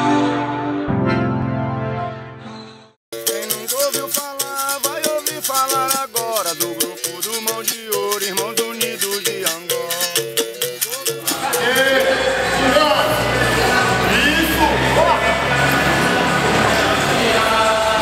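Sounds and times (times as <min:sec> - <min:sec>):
sliding melody: 0:00.0 - 0:18.0
shaker rattling: 0:03.1 - 0:12.4
voices echoing in a hall: 0:11.2 - 0:18.0.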